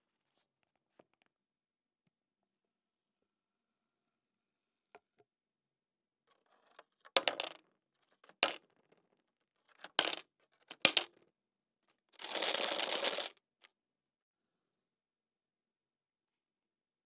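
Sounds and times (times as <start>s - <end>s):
coins clinking into plastic bottle: 12.2s - 13.3s
plastic bottle crackling: 12.2s - 13.3s.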